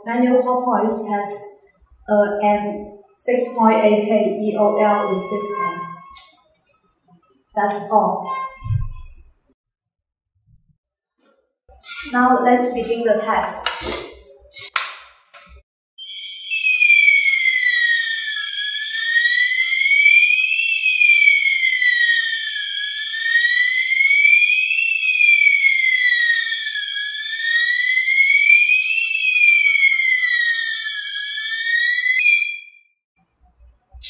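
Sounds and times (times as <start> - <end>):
fire alarm siren rising and falling: 0.8 - 6.3, 7.6 - 9.2, 16.0 - 32.9
steady shrill alarm tones: 4.5 - 6.4, 16.0 - 32.8.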